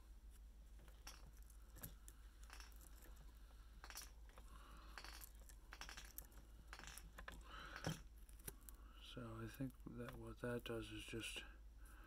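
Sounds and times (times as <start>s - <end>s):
small clicks and rustles of hands: 0.3s - 8.8s.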